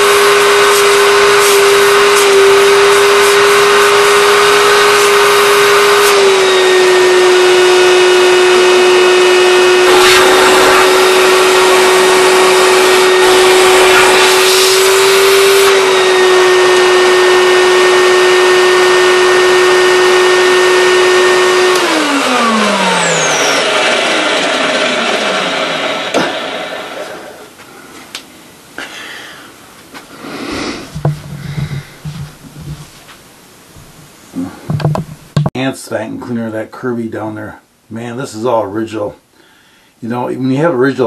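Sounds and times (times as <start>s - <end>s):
vacuum cleaner motor whine: 0.0s - 27.6s
air hissing rushes: 9.8s - 15.8s, 30.1s - 32.8s.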